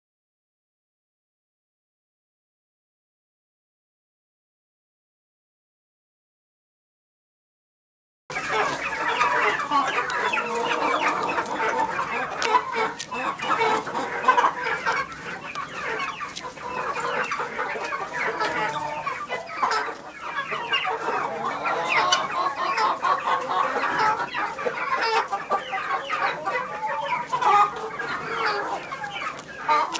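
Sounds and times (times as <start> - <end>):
chickens clucking: 8.3 - 29.9.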